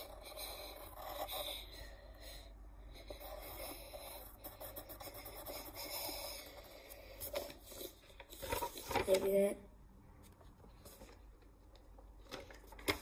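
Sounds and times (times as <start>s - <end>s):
pencil scratching on paper: 0.0s - 2.0s, 2.9s - 8.0s.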